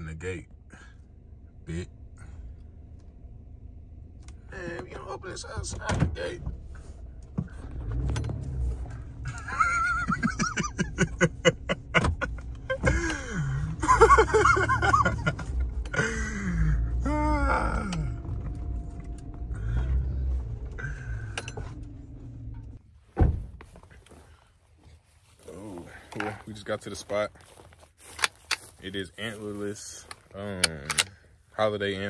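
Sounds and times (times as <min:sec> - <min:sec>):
engine idling: 0:00.0 - 0:22.8
people laughing: 0:09.2 - 0:16.8.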